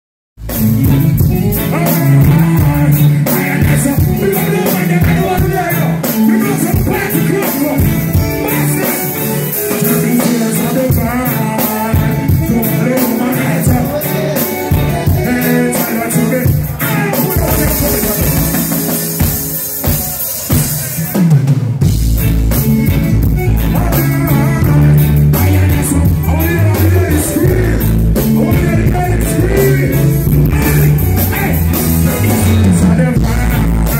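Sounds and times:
person singing: 0.4s - 21.2s, 22.7s - 33.9s
live reggae band: 0.4s - 33.9s
deep bass: 21.8s - 33.9s.

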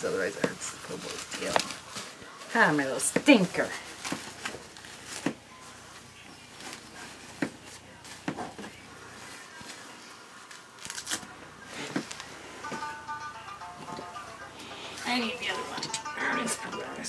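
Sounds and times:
diaper rustling and crinkling: 0.1s - 12.4s.

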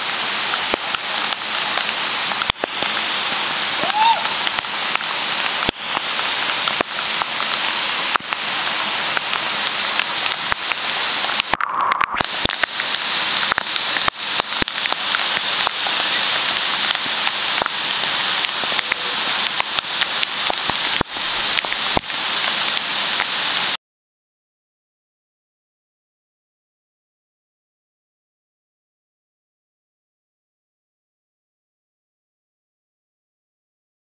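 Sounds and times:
waterfall rushing: 0.0s - 23.8s
crackles and pops: 0.4s - 23.8s.

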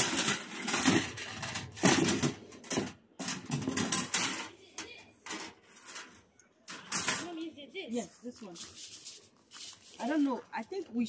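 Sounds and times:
metal utensils clattering in a box: 0.0s - 7.4s.

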